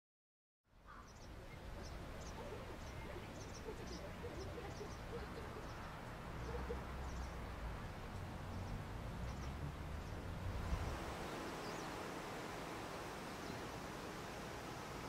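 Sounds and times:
small birds chirping: 0:00.8 - 0:15.0.

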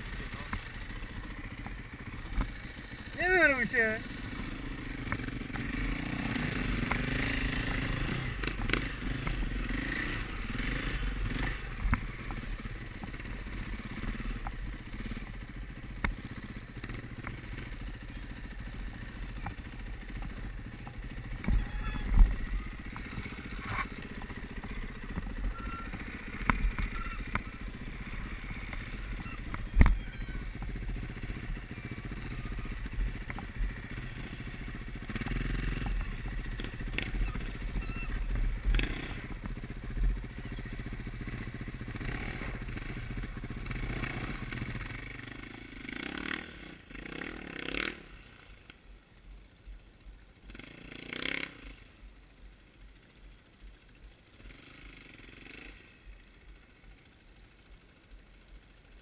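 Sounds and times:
motorcycle engine revving: 0:00.0 - 0:48.8, 0:49.4 - 0:58.9.

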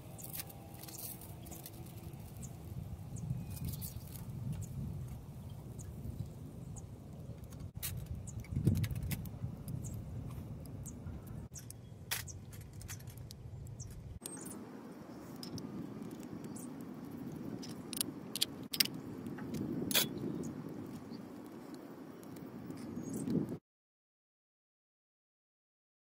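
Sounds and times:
outdoor background noise: 0:00.0 - 0:23.6.

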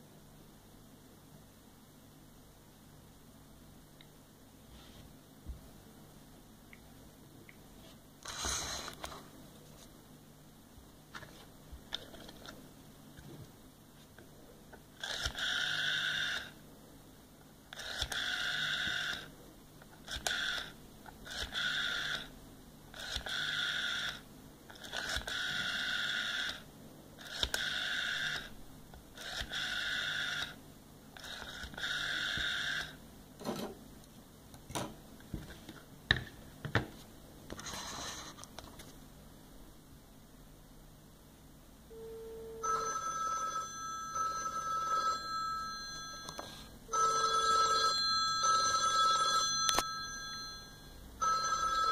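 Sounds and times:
rotary dial whirring: 0:08.2 - 0:09.1, 0:15.0 - 0:16.6, 0:17.7 - 0:19.3, 0:20.0 - 0:22.3, 0:22.9 - 0:28.5, 0:29.2 - 0:30.6, 0:31.2 - 0:33.0.

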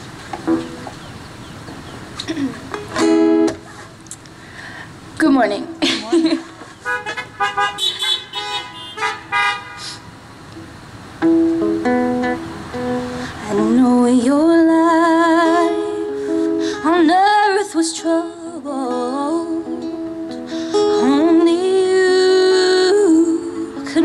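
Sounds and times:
acoustic guitar picking: 0:00.0 - 0:04.0, 0:10.6 - 0:24.0
car horn toots: 0:06.8 - 0:10.0
woman singing with vibrato: 0:13.3 - 0:24.0.

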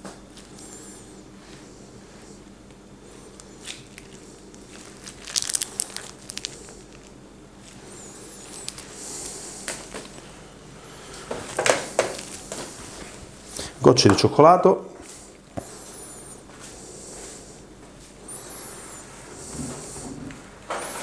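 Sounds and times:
faint steady hum: 0:00.0 - 0:21.0
piping bag rustling: 0:03.0 - 0:13.8.

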